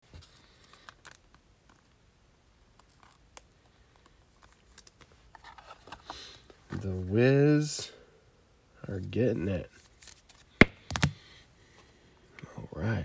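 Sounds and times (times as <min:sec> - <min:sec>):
faint clicks and rustles: 0:02.7 - 0:06.9.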